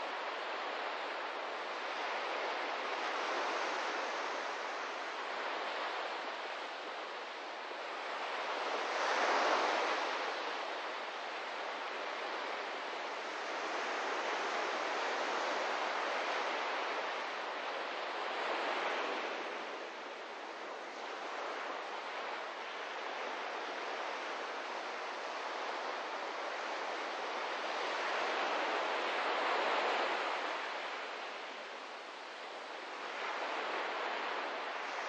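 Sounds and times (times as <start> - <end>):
ocean surf on sandy beach: 0.0 - 35.0.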